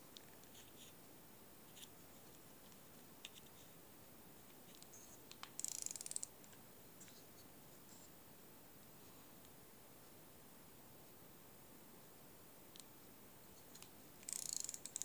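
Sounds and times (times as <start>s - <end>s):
fast run of reel clicks: 5.6s - 6.3s, 14.2s - 15.0s
fishing reel clicking: 5.6s - 6.3s, 14.2s - 15.0s.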